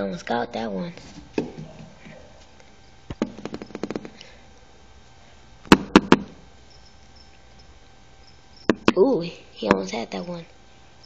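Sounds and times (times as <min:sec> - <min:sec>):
sharp taps: 0:03.1 - 0:04.2.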